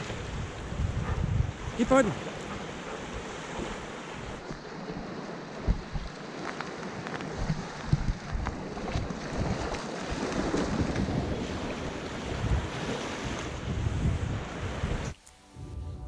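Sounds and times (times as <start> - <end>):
small waves washing onto shore: 0.0 - 15.5
wind buffeting microphone: 0.0 - 16.0
dogs splashing through water: 2.2 - 13.5.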